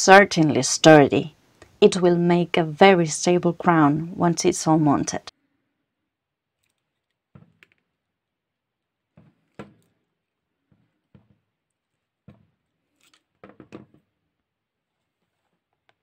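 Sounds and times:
pliers bending wire: 6.5 - 7.9, 11.8 - 13.4.

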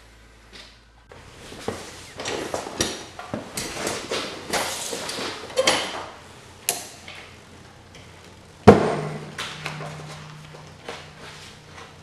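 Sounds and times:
sharp loud knock: 8.7 - 9.3.

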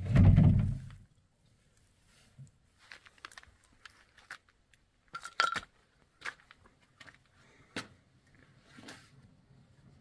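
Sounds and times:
stone fragments clinking underfoot: 2.9 - 5.8.

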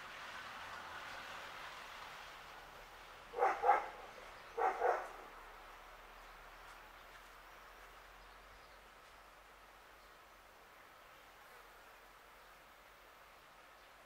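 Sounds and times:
dog barking: 3.4 - 4.0, 4.6 - 5.2.

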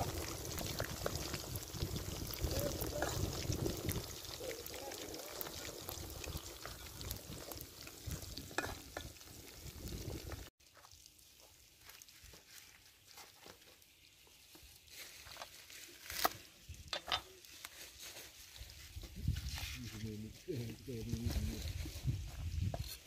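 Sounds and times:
food sizzling in oil: 0.0 - 23.0
metal spatula scraping wok: 8.6 - 9.1.

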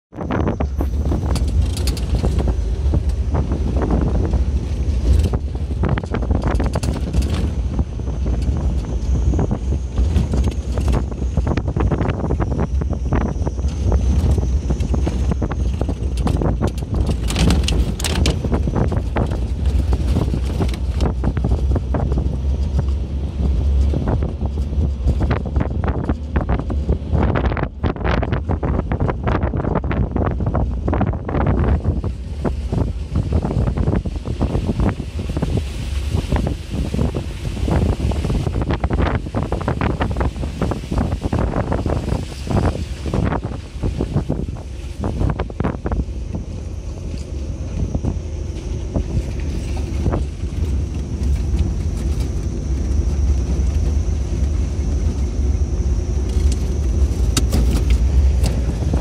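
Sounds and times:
vehicle driving on dirt road: 0.0 - 59.0
wind buffeting microphone: 0.1 - 59.0
knocks and rattles: 0.8 - 11.6, 14.2 - 23.0.

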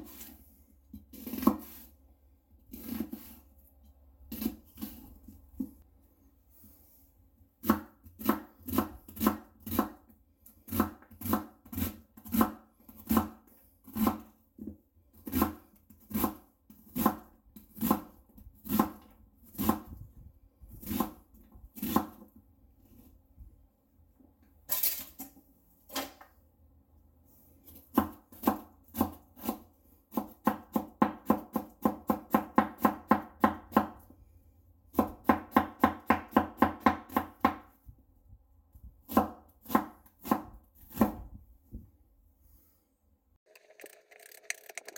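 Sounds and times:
knife chopping on wooden board: 7.6 - 10.0, 10.7 - 19.0, 39.1 - 41.3.

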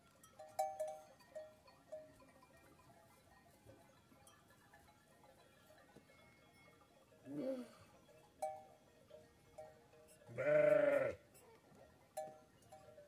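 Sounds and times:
sheep bleating: 10.3 - 11.2.

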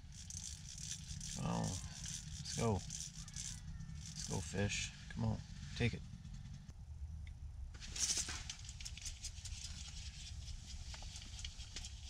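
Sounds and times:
fishing reel clicking: 0.0 - 4.4
low steady rumble: 0.0 - 12.0.

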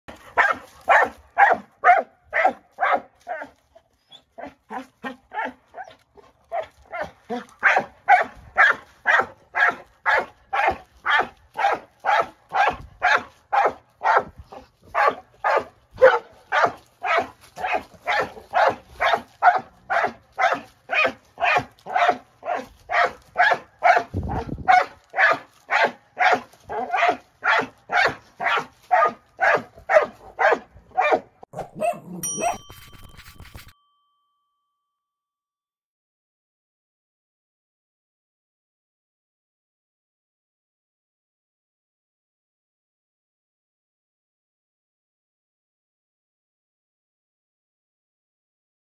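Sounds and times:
dog barking: 0.3 - 3.5, 4.4 - 5.9, 6.5 - 32.6.

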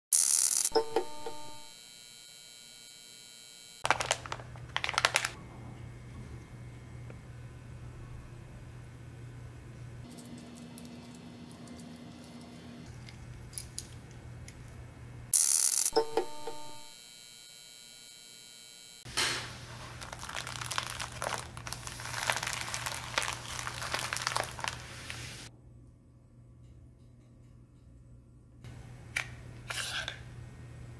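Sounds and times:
plastic bag crinkling: 3.8 - 5.4, 19.6 - 25.5
electronic sound effect with buzz: 15.4 - 19.1.

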